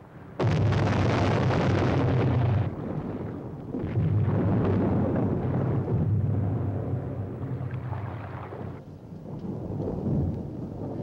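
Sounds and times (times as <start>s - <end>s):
underwater explosions rumbling: 0.4s - 8.8s.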